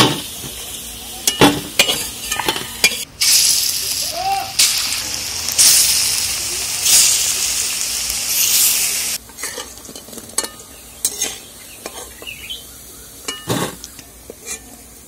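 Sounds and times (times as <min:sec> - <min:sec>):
fritters sizzling in hot oil: 0:00.0 - 0:12.6
metal spatula scraping a wok: 0:08.4 - 0:12.3, 0:13.3 - 0:14.8.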